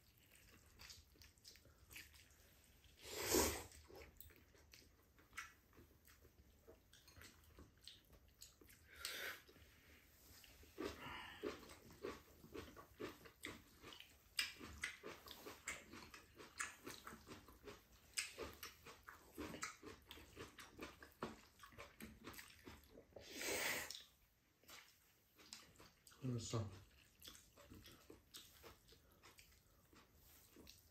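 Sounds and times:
chewing noodles: 0.0 - 30.9
noodle slurp: 0.1 - 4.2.

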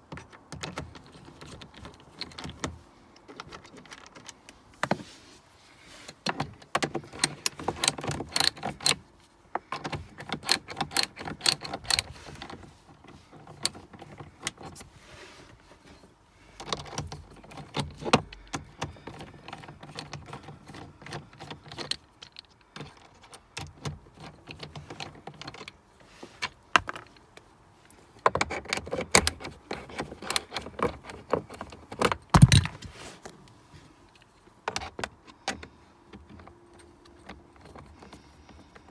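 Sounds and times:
socket ratchet clicking: 6.7 - 9.0, 9.8 - 12.1.

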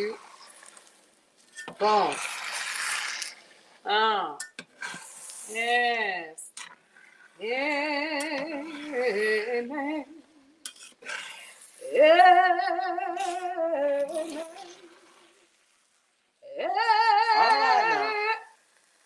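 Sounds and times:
woman singing unaccompanied: 7.4 - 10.6, 11.8 - 15.1, 16.4 - 18.6.

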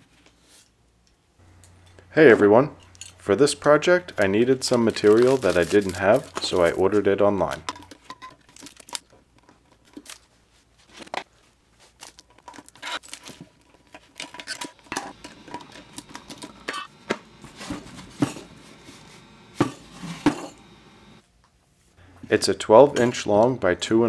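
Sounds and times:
paper and tape tearing: 4.7 - 6.9.

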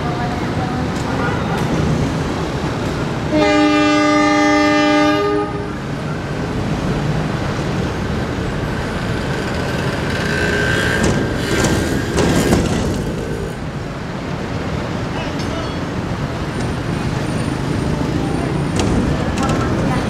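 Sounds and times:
locomotive horn: 3.3 - 5.8
engine and wheels rumbling: 4.5 - 20.0.

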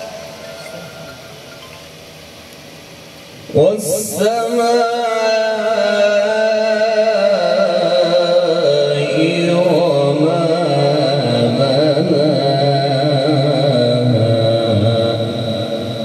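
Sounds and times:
man reciting melodically: 3.5 - 16.0.

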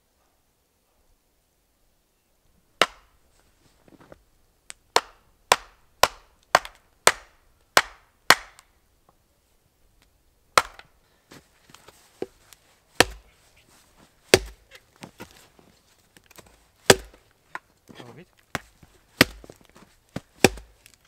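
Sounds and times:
axe chopping wooden log: 2.8 - 3.1, 4.9 - 8.7, 10.6 - 10.9, 13.0 - 13.3, 14.3 - 15.4, 16.3 - 17.7, 18.5 - 21.0.

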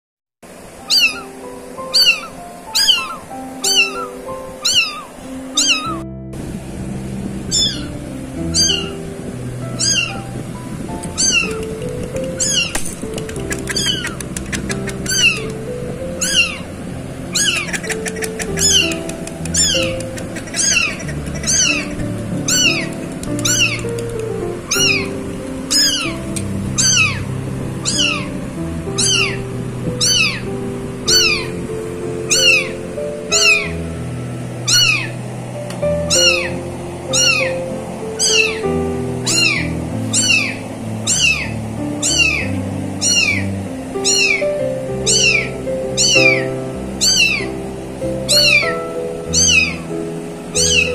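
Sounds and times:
background music with melody: 0.6 - 50.9
high-pitched kitten meows: 0.9 - 6.0, 7.5 - 7.9, 8.5 - 9.0, 9.8 - 10.2, 11.1 - 12.8, 13.7 - 14.2, 14.9 - 15.6, 16.2 - 16.6, 17.3 - 23.9, 24.7 - 25.1, 25.7 - 26.2, 26.8 - 27.2, 27.8 - 28.3, 29.0 - 29.4, 30.0 - 30.5, 31.1 - 31.5, 32.3 - 32.7, 34.7 - 35.1, 36.1 - 37.5, 38.2 - 38.6, 39.2 - 44.5, 45.1 - 47.5, 48.3 - 48.7, 49.3 - 49.8, 50.5 - 50.9.

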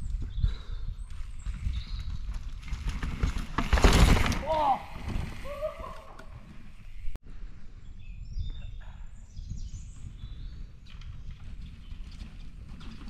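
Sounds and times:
small birds chirping: 6.7 - 12.2.

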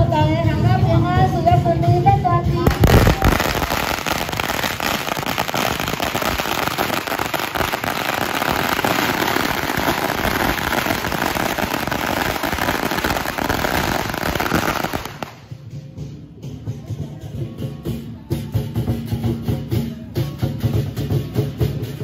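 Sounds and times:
firecrackers crackling: 2.6 - 15.7.

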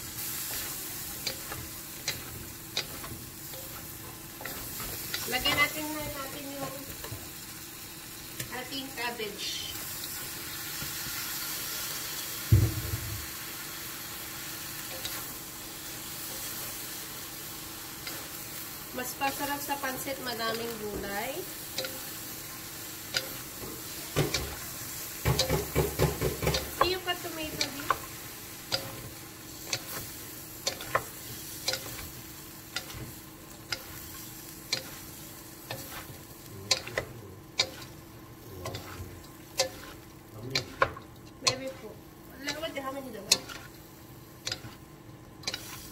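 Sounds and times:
cabbage sizzling in a wok: 0.0 - 45.9
loud low thump: 12.5 - 13.3
wooden spatula stirring: 23.2 - 38.0, 38.6 - 43.8.

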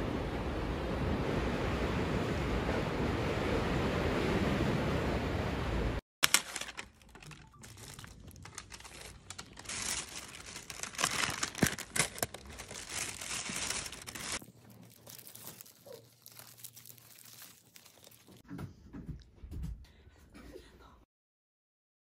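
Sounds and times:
plastic bag crinkling: 6.2 - 18.4.

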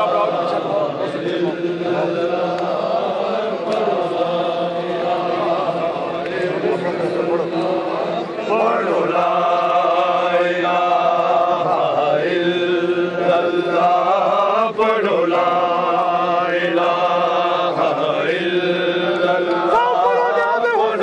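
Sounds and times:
men chanting: 0.0 - 21.0.

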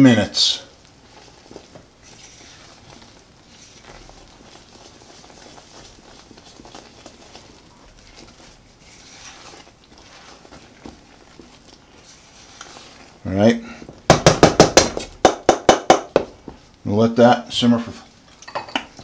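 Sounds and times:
spatula scraping pan: 0.4 - 14.1
sauce bubbling and popping: 0.7 - 16.9.

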